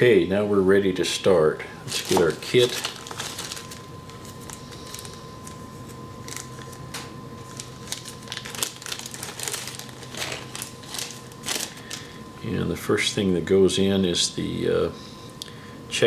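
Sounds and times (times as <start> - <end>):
faint steady hum: 0.0 - 16.0
plastic bag crinkling: 1.9 - 5.6, 6.2 - 12.1.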